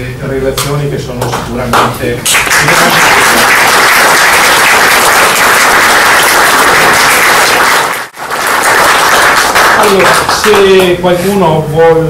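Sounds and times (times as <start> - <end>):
audience applauding: 2.3 - 10.7.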